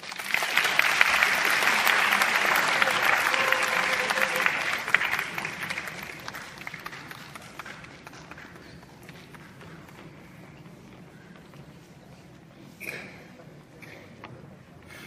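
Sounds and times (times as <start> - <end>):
audience applause: 0.0 - 10.2.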